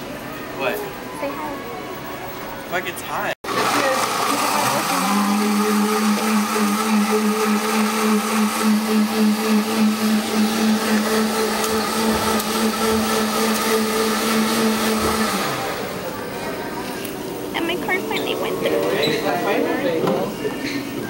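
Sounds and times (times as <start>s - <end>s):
blender running: 3.4s - 16.2s.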